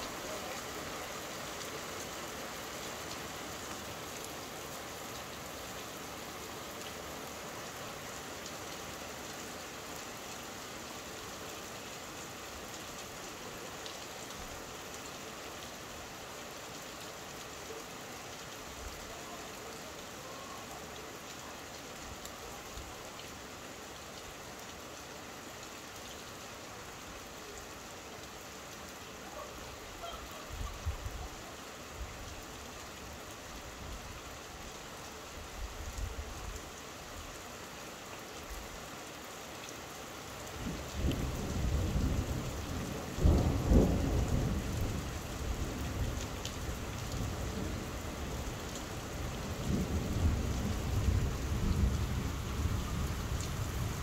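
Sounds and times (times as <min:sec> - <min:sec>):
steady rain: 0:00.0 - 0:54.0.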